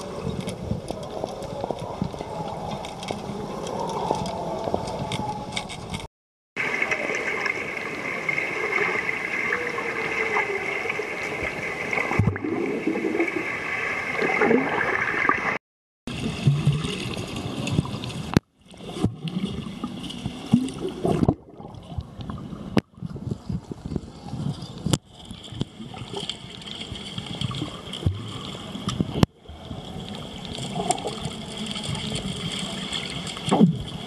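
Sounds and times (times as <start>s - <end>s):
bubbles streaming: 6.6s - 23.2s
underwater gurgling and bubbling: 6.6s - 34.0s.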